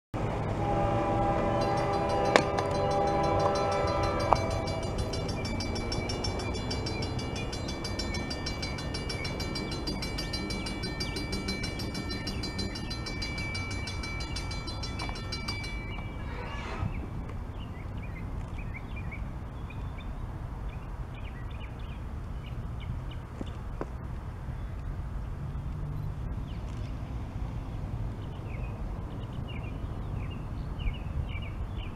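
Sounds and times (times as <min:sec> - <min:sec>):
locomotive air horn: 0:00.3 - 0:06.3
crossing warning bell ringing: 0:00.5 - 0:16.6.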